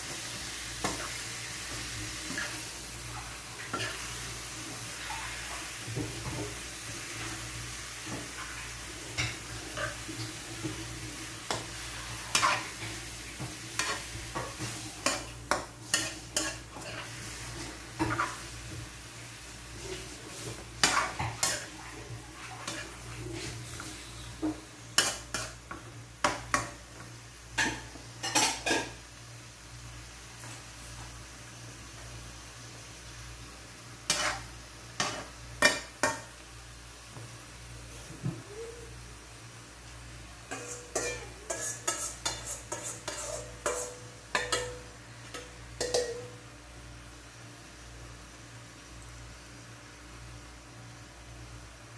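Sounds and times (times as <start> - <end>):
light sizzling: 0.0 - 51.9
metal spoon scraping and clinking: 40.5 - 46.2.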